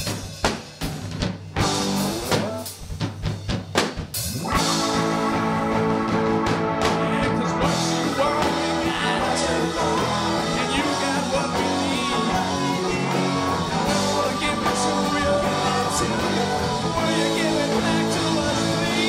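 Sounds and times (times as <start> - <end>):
rock band playing: 0.0 - 19.0
person singing: 6.8 - 19.0.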